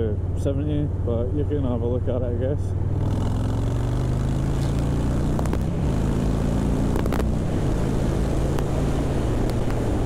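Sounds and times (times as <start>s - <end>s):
motorcycle engine accelerating: 2.8s - 10.0s
wind noise on microphone: 6.9s - 10.0s.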